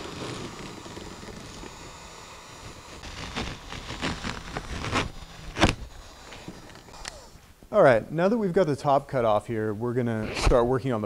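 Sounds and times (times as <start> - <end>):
heat gun hissing: 0.0 - 7.6
fabric ripping: 2.9 - 6.4.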